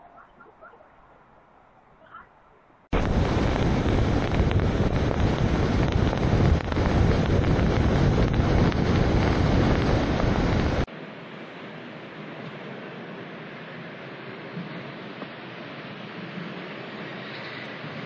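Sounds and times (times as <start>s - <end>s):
wind noise on microphone: 2.9s - 10.9s.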